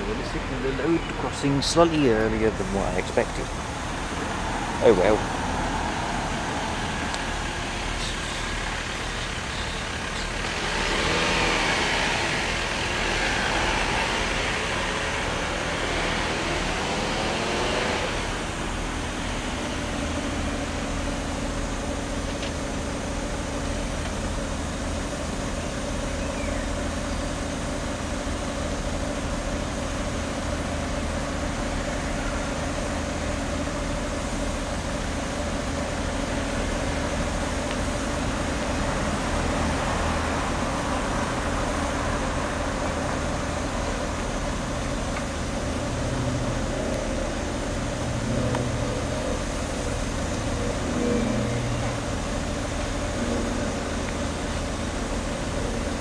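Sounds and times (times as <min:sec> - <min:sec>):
road traffic noise: 0:00.0 - 0:56.0
vehicle passing: 0:10.4 - 0:19.7, 0:45.9 - 0:52.2.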